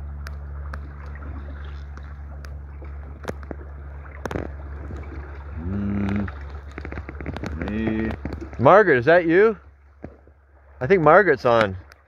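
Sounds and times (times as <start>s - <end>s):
water rushing along boat hull: 0.0s - 12.0s
sharp clicks and knocks: 1.9s - 5.0s, 6.0s - 8.6s.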